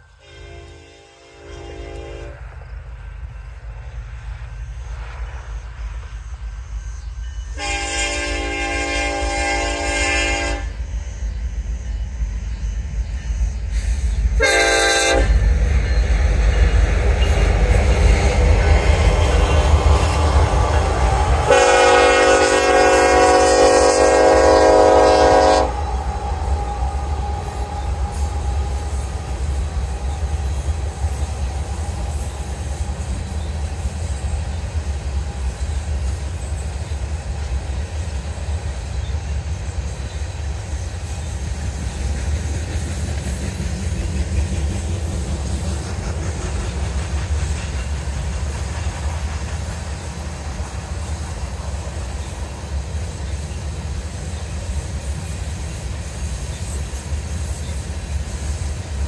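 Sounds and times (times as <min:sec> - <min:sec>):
train rumbling: 0:00.0 - 0:59.0
locomotive horn blasts: 0:00.1 - 0:02.4, 0:07.5 - 0:10.8, 0:14.4 - 0:15.4, 0:20.0 - 0:30.8.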